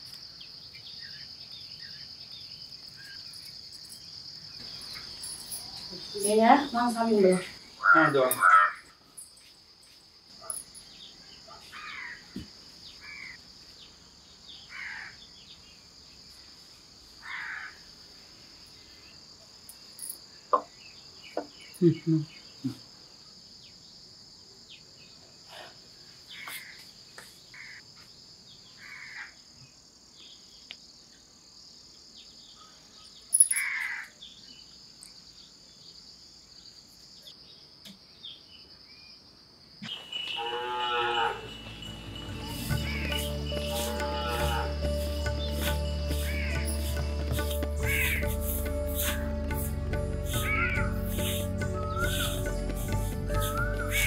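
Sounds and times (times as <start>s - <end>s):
crickets trilling: 0.0s - 54.0s
bird calls: 39.8s - 49.6s, 50.2s - 54.0s.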